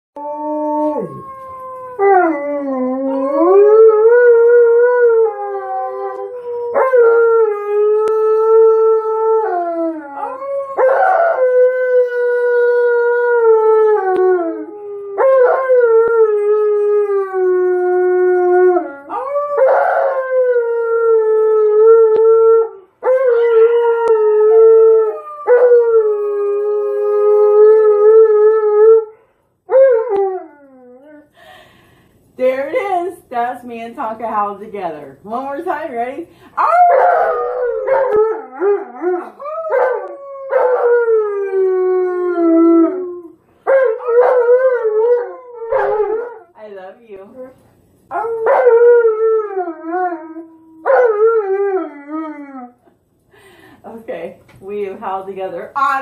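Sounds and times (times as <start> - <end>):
dog howling: 0.2 - 17.0.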